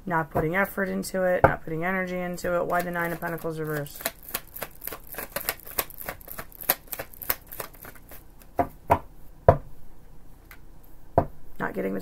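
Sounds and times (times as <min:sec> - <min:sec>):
cards being shuffled: 0:02.6 - 0:08.6.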